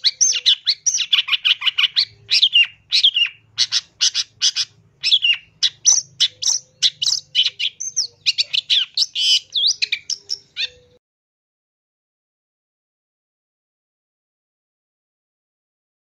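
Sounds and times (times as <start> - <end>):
shrike singing: 0.0 - 11.0.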